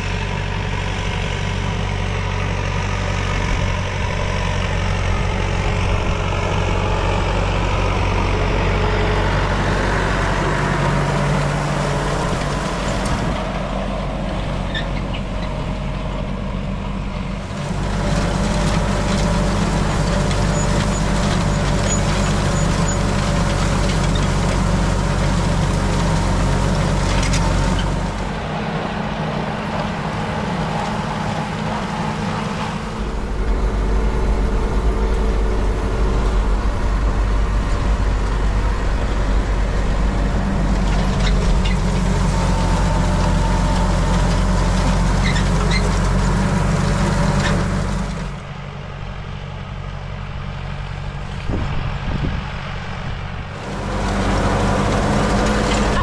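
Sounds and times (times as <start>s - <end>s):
tractor diesel engine under load: 0.0s - 56.0s.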